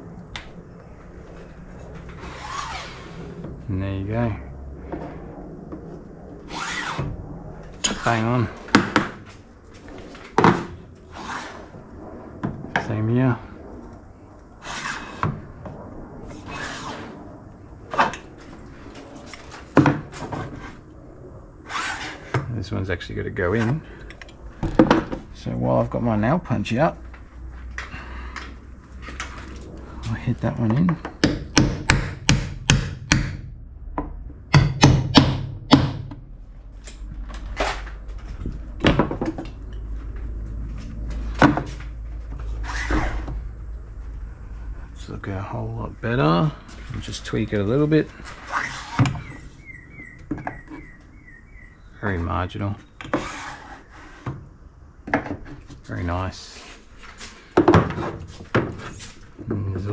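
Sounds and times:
hammer tapping a nail punch: 31.2 - 33.4.

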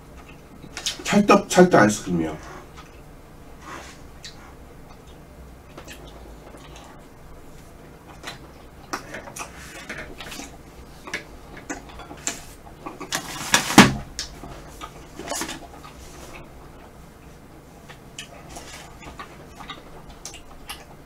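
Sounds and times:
person eating ice cream: 3.8 - 13.4, 14.4 - 21.0
wet clicks and lip smacks: 19.0 - 20.9.

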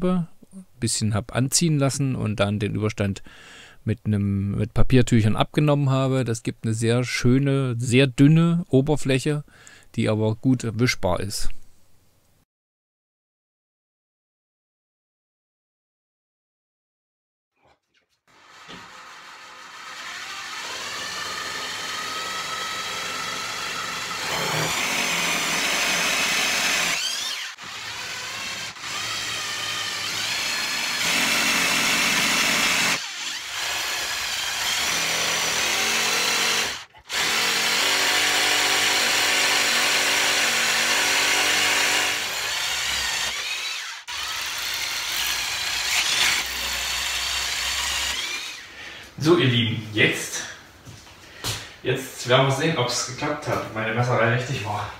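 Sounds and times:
electric drill whining: 18.3 - 48.7.

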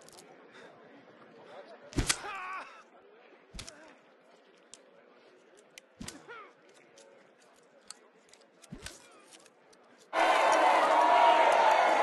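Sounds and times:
whip lashes: 2.0 - 2.3.

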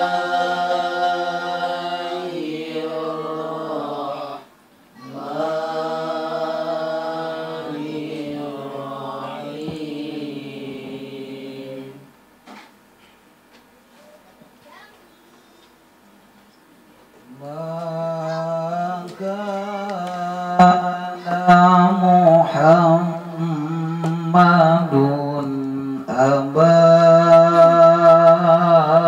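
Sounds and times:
man chanting into microphone: 17.4 - 29.0.

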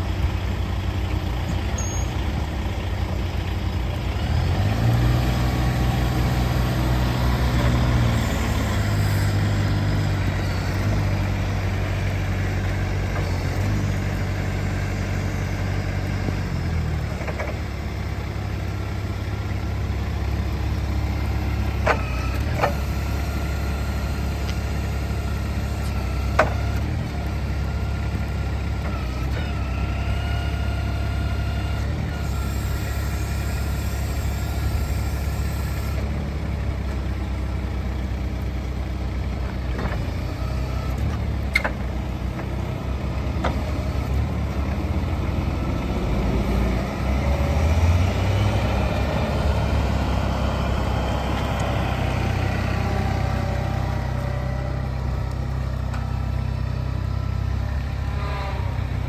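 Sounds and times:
forklift engine running: 0.0 - 59.0.

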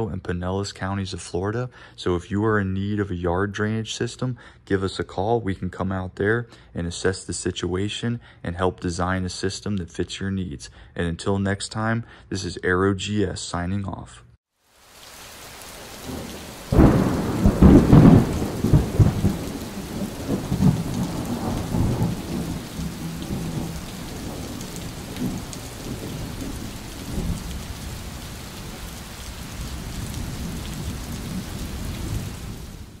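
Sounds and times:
rain hissing: 14.6 - 33.0
thunder rumbling: 15.8 - 33.0.

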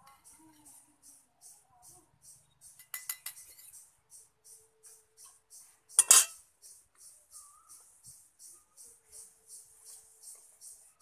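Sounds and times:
metal spatula clinking on metal pot: 2.8 - 3.7, 6.0 - 6.4.

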